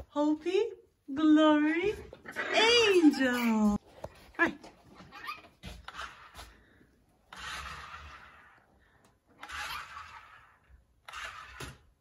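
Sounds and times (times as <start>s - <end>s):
toy car whirring: 5.2s - 6.4s, 7.3s - 8.7s, 9.3s - 12.0s.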